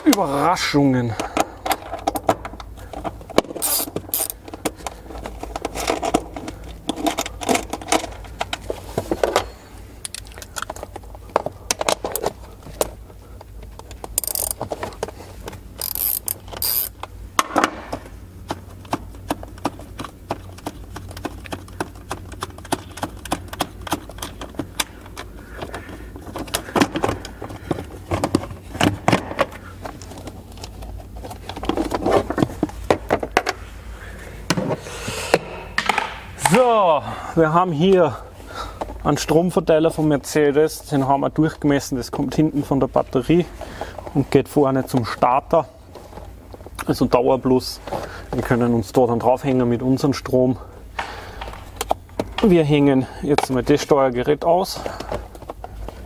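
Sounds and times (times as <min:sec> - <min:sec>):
hand ratchet clicking: 0:03.6 - 0:04.4, 0:14.2 - 0:14.6, 0:15.8 - 0:17.0.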